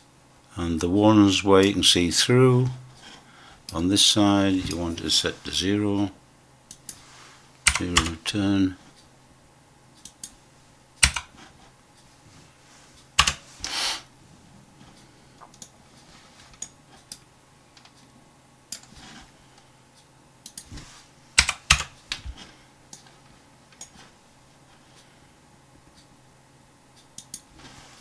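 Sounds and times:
keyboard and mouse clicking: 7.7s - 8.2s, 11.0s - 11.3s, 13.2s - 13.4s, 20.4s - 20.7s, 21.4s - 22.2s, 27.2s - 27.5s.

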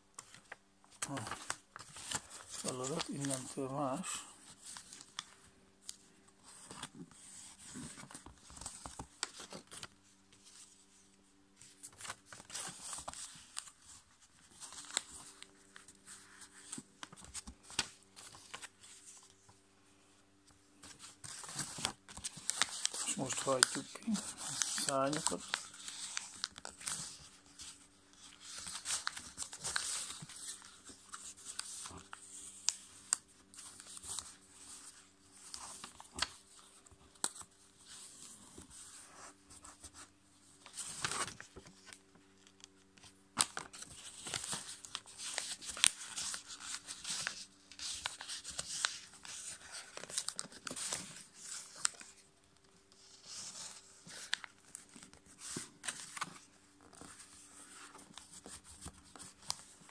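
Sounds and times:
paper rustling and crinkling: 0.2s - 19.6s, 20.5s - 59.9s
sharp clicks of paper folds: 20.8s - 38.9s, 40.6s - 59.9s.

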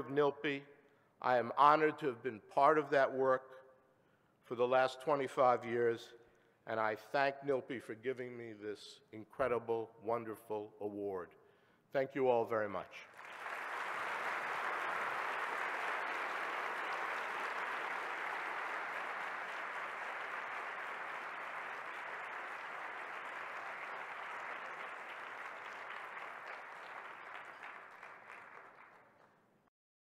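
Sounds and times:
audience applauding: 13.1s - 29.4s.

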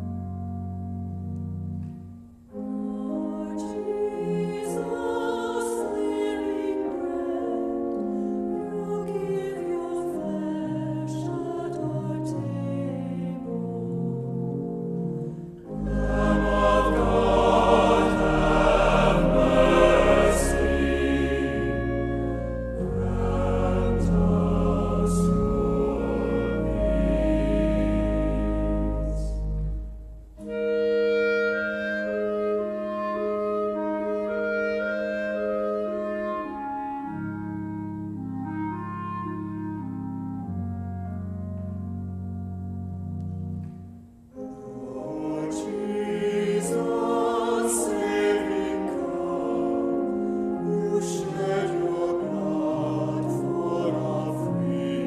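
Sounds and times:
choir singing with instruments: 2.5s - 29.8s, 44.3s - 55.0s.

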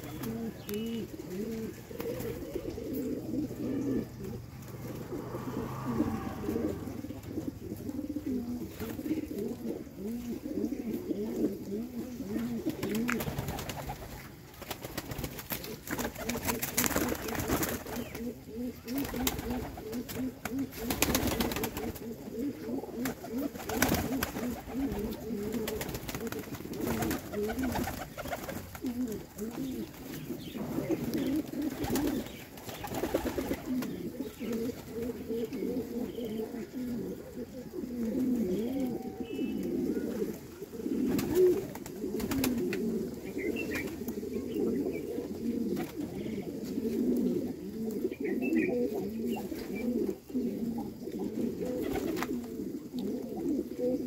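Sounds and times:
pigeons cooing: 0.0s - 54.0s
wings fluttering: 12.6s - 18.3s, 18.9s - 22.1s, 23.0s - 30.3s, 31.0s - 35.2s, 40.2s - 42.8s.

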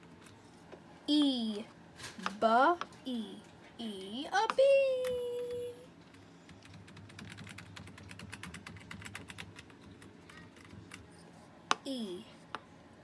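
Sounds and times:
laptop keyboard typing: 4.5s - 11.1s.

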